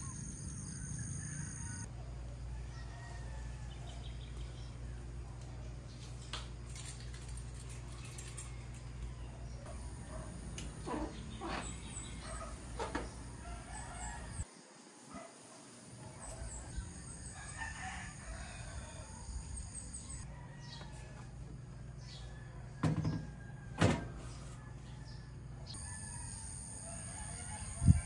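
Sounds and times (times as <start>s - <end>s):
rooster crowing: 0.6s - 4.2s, 13.4s - 14.5s, 16.4s - 28.0s.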